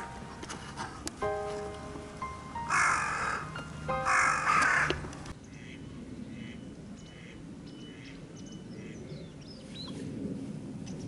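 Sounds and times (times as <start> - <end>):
crow cawing: 2.6 - 5.0.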